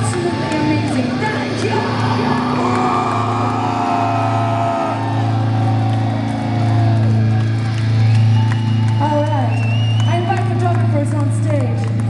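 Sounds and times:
live metal band amplified: 0.0s - 12.0s.

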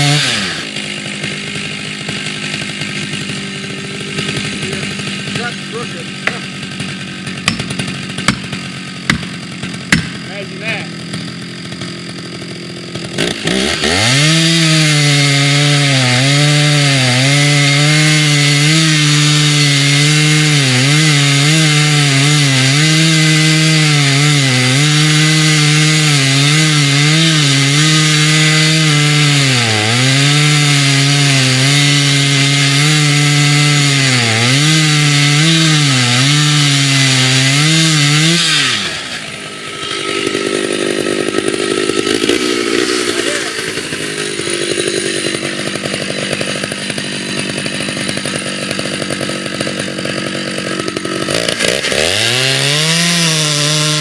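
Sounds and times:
chainsaw cutting log: 0.0s - 54.0s.

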